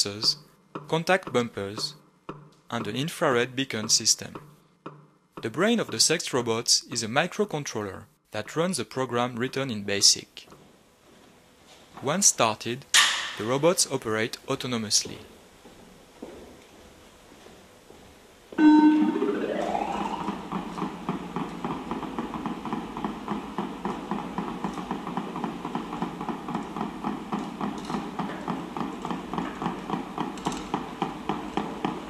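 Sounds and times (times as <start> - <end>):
fast electronic rhythmic pulsing: 18.6 - 22.0.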